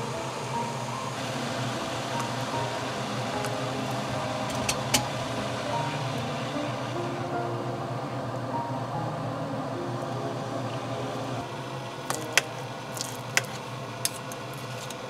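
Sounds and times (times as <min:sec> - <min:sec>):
broth bubbling in a pot: 0:00.1 - 0:07.1.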